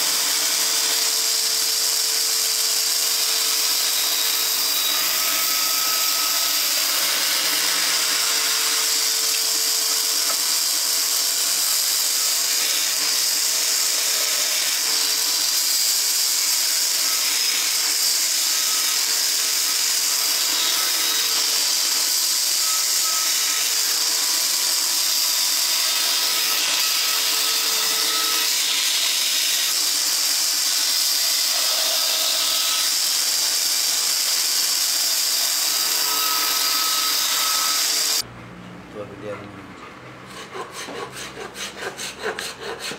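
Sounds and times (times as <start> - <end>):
bandsaw cutting wood: 0.0 - 38.3, 40.3 - 42.9.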